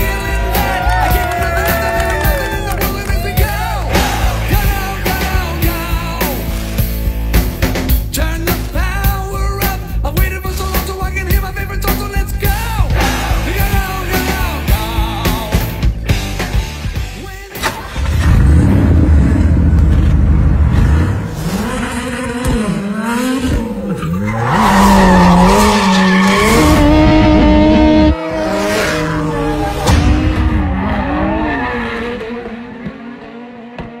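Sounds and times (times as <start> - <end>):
car engine revving hard: 18.0 - 34.0.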